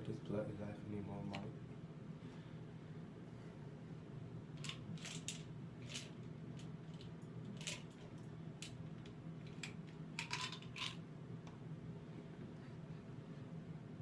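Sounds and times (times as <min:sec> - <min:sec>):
low steady hum: 0:00.0 - 0:14.0
pills rattling in plastic bottle: 0:04.6 - 0:11.0.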